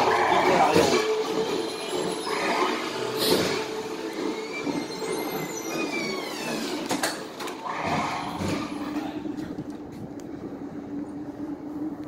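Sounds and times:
machinery hum: 0:00.0 - 0:12.0
high squeal sliding in pitch: 0:01.0 - 0:06.9.

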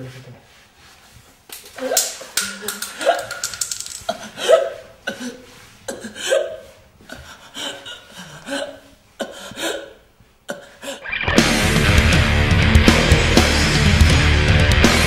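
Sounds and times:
woman gasping and choking: 0:04.1 - 0:11.1.

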